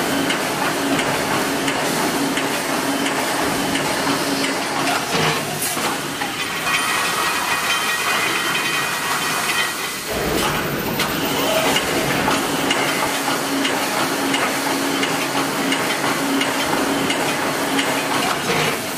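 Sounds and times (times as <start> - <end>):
welding machine hiss: 9.1 - 18.9
machine knock: 10.1 - 18.8.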